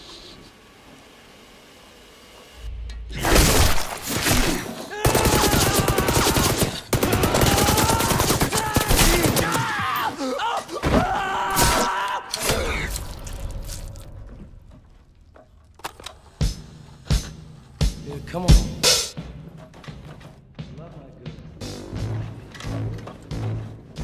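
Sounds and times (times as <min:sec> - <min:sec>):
men crying out: 0:04.9 - 0:12.8
automatic gunfire: 0:05.0 - 0:09.4.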